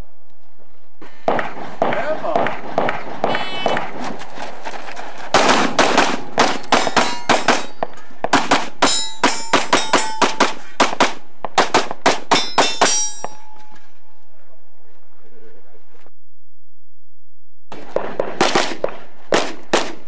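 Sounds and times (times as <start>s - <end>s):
rapid pistol fire: 1.2s - 4.2s, 5.3s - 7.7s, 8.3s - 8.9s, 9.5s - 12.7s, 17.7s - 20.0s
steel targets clanging: 5.4s - 10.9s, 12.2s - 14.0s.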